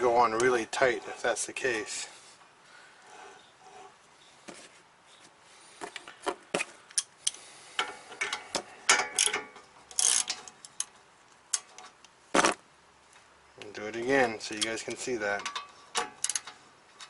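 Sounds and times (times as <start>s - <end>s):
socket clacking on hub nut: 6.9s - 10.9s, 15.4s - 16.6s.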